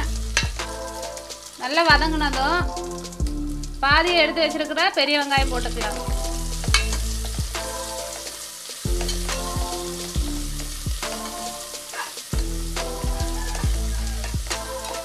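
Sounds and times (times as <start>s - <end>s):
background music: 0.0s - 15.0s
onions sizzling in hot fat: 0.0s - 15.0s
ladle scraping against pot: 11.2s - 12.2s.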